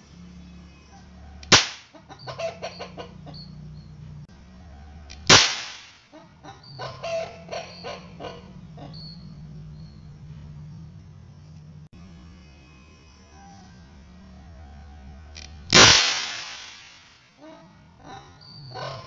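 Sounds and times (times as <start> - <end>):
mini cannon bangs: 1.5 - 1.9, 5.2 - 6.0, 15.7 - 17.1.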